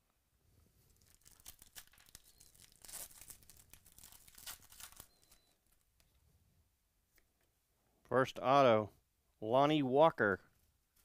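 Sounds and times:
foil wrapper tearing and crinkling: 1.0s - 5.6s.

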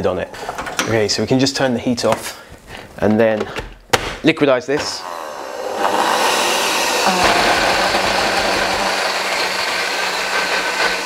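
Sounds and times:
blender running: 4.8s - 11.0s.

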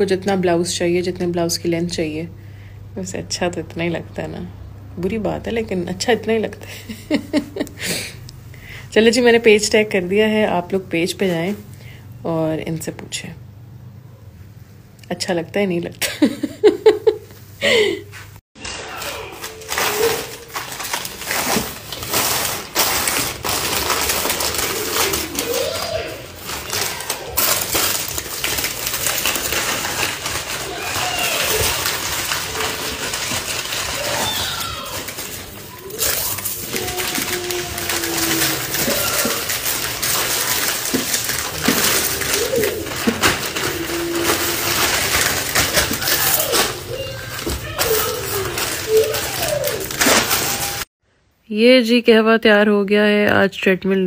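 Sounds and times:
packaging rustling and clattering: 18.6s - 50.9s.

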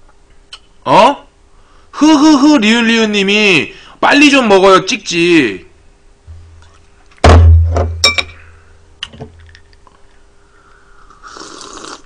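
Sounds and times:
heavy thump on tabletop: 7.2s - 8.0s
drinking glass clinking: 8.0s - 8.4s.

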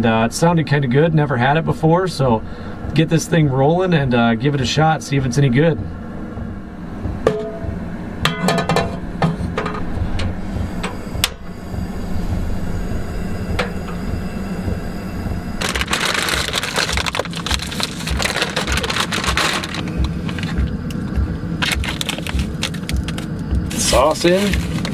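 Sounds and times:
frozen pasta rattling and sizzling: 15.6s - 20.6s, 21.6s - 24.9s.

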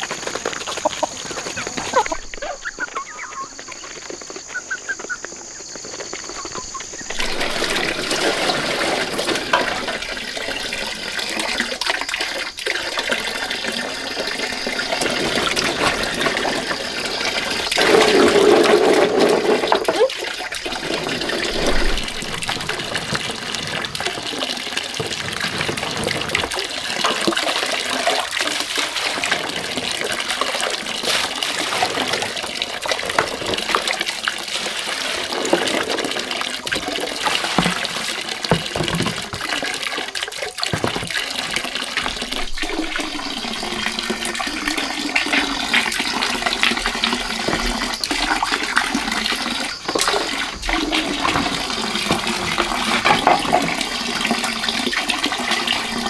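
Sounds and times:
chickens: 0.0s - 10.0s
water pouring and splashing: 0.0s - 56.0s.

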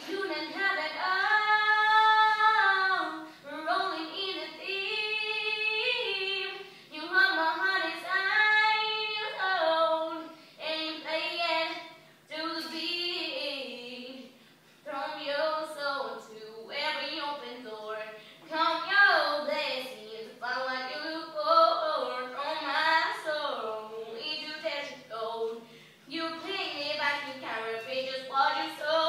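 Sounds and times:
woman singing unaccompanied: 0.0s - 29.0s
person breathing: 25.6s - 26.1s.

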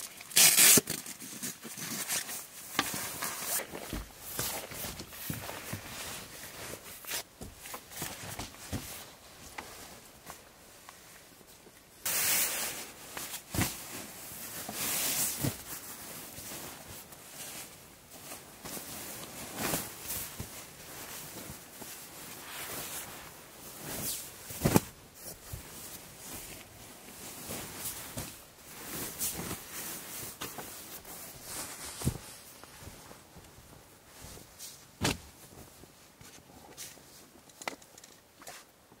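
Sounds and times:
handling rustling: 11.7s - 37.6s.

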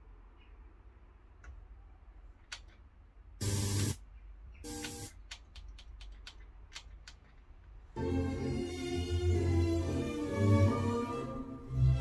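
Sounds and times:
radio station bursts and hiss: 3.4s - 4.0s.

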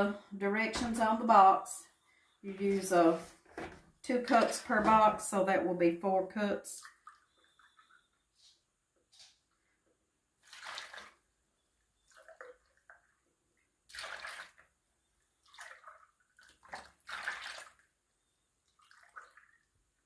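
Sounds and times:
milk pouring and splashing: 6.8s - 8.1s, 10.4s - 11.4s, 12.0s - 14.8s, 15.4s - 18.0s, 18.6s - 20.0s.

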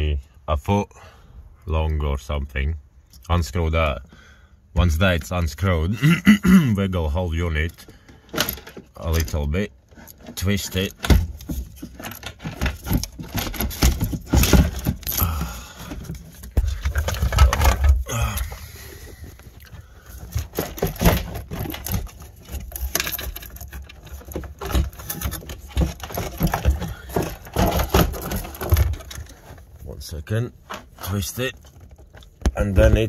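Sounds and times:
clicks knocks and scrapes of fuel pump: 7.7s - 29.9s, 30.6s - 33.0s.

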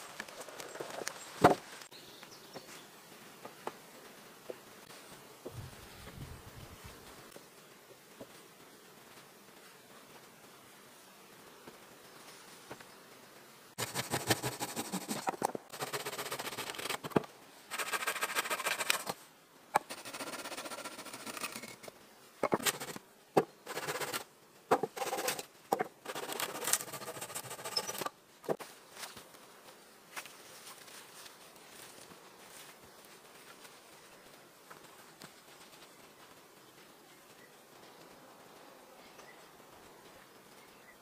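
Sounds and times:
wooden poles scraping and rustling: 13.8s - 19.2s, 19.8s - 23.0s, 23.6s - 29.2s
sharp wooden knocks: 24.7s - 25.9s.

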